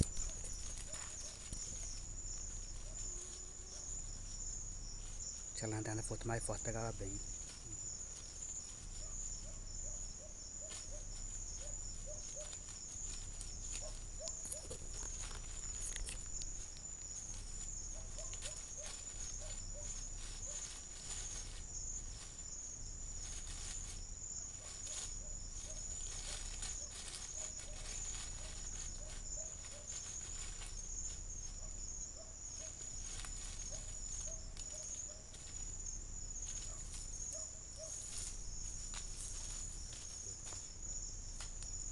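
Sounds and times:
night insects chorus: 0.0s - 41.9s
rustling in vegetation: 0.0s - 41.9s.

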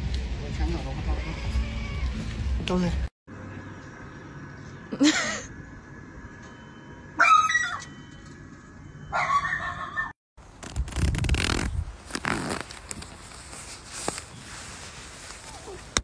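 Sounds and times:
small dog whining: 7.2s - 7.9s
nylon jacket rustling: 10.5s - 16.0s.

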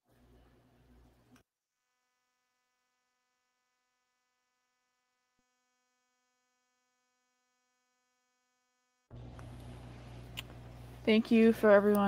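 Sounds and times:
faint electrical hum: 0.0s - 1.4s, 9.1s - 12.0s.

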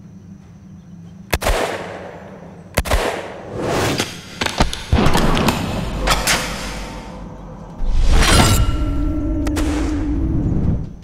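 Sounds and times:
rifle shots: 1.3s - 3.4s.

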